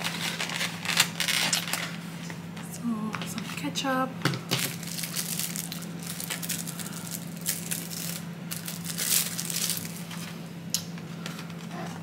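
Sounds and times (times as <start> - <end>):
plastic packet crinkling and tearing: 0.0 - 2.0, 4.6 - 10.2.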